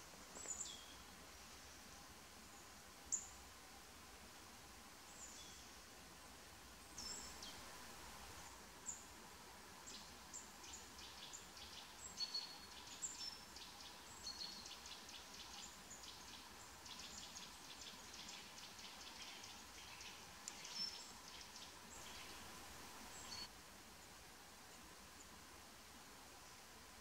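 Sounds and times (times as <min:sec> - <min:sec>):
faint steady hum: 0:00.0 - 0:27.0
small birds chirping: 0:00.3 - 0:03.4, 0:06.8 - 0:07.8, 0:09.8 - 0:23.5.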